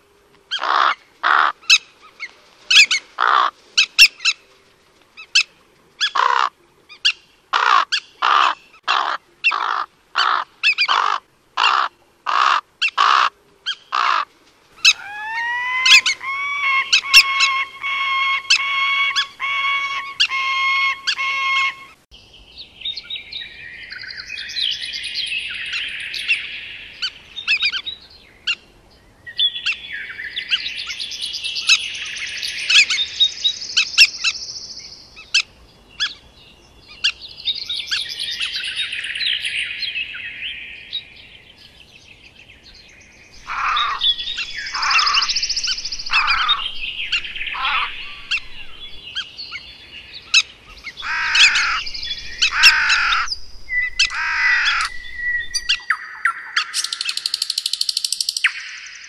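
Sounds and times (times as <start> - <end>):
birds chirping: 0.0 - 59.0
bird calls sliding downward: 50.9 - 59.0.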